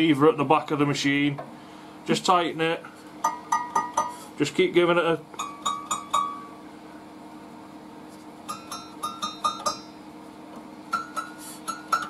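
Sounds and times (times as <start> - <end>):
saw blade plucked pinging: 8.5 - 10.0, 10.9 - 12.0.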